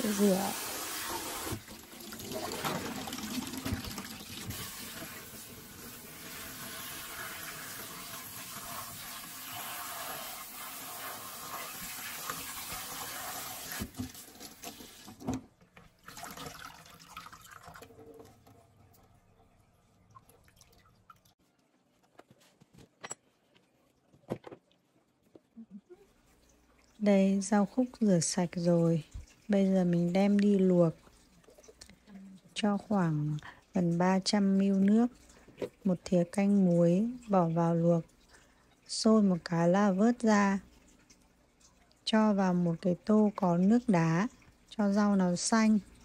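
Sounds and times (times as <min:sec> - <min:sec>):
tap water running into sink: 0:00.0 - 0:19.2
faint handling sounds: 0:21.4 - 0:26.9.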